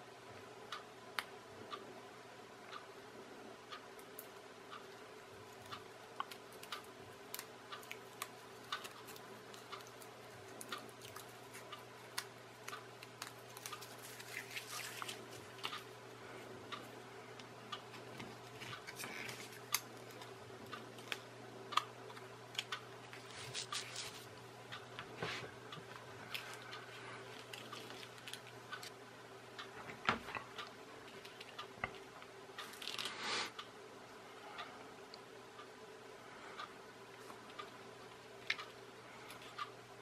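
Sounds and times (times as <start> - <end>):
faint steady hum: 0.0 - 40.0
rustling: 23.1 - 24.3.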